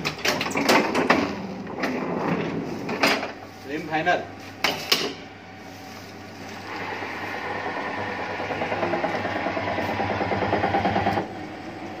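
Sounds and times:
motor hum: 0:05.3 - 0:12.0
fast pulsing mechanical sound: 0:06.7 - 0:11.4.

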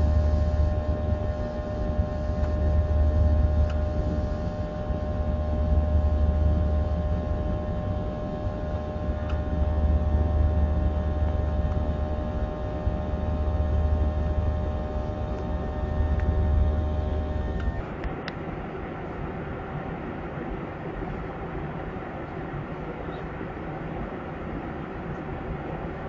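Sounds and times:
jet engine whining tones: 0:00.0 - 0:20.2
airliner cabin drone: 0:00.0 - 0:26.0.

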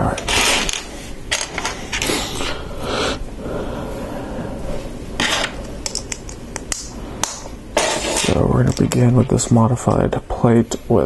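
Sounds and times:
plastic parts rustling: 0:00.1 - 0:02.1.

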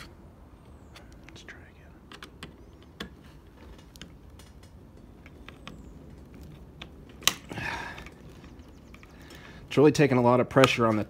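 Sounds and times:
screwdriver clicks and creaks: 0:02.0 - 0:09.3.

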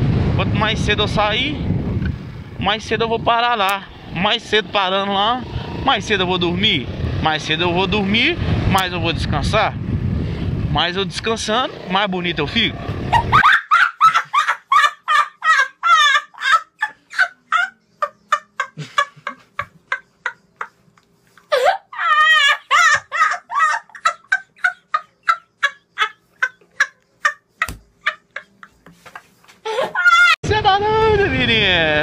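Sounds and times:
boy laughing hysterically: 0:13.1 - 0:30.4.

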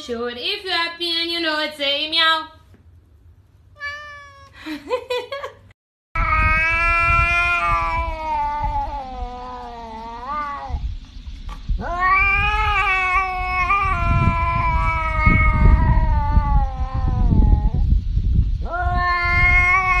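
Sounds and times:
cat yowling: 0:03.8 - 0:04.6, 0:06.2 - 0:10.8, 0:11.8 - 0:17.8, 0:18.6 - 0:20.0
low rumbling noise: 0:06.2 - 0:20.0.

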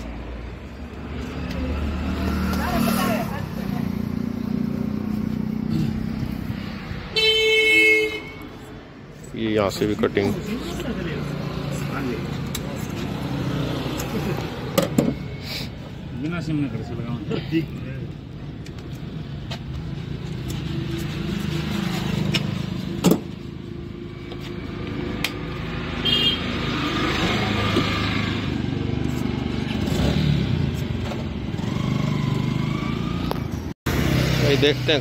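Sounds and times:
road traffic rumble: 0:00.0 - 0:35.0.

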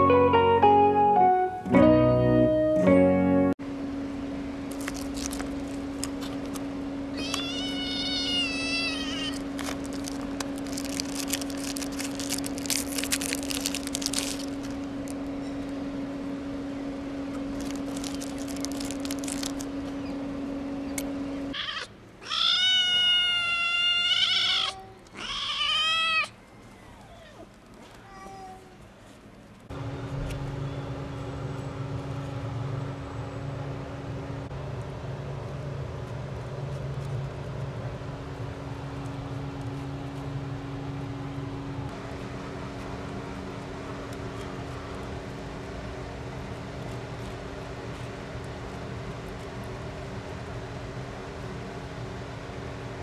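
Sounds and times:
steady hum: 0:00.0 - 0:23.4, 0:28.7 - 0:53.0
kitten meowing: 0:07.2 - 0:09.4, 0:21.5 - 0:26.3.

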